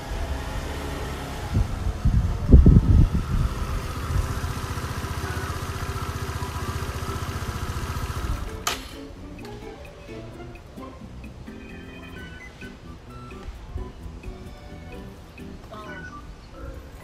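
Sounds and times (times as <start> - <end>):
scooter engine idling: 0.0 - 9.2.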